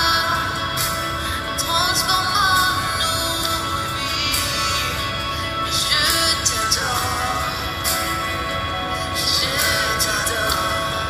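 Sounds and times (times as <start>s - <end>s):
instrumental song backing: 0.0s - 11.0s.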